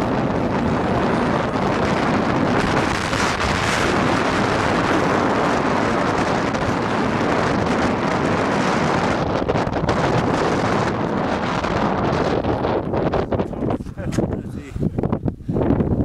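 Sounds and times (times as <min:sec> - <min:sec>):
strong wind on microphone: 0:00.0 - 0:16.0.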